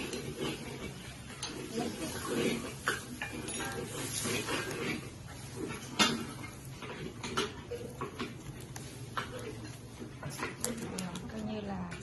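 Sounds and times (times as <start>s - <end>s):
leaves rustling and crackling: 0.0s - 6.7s.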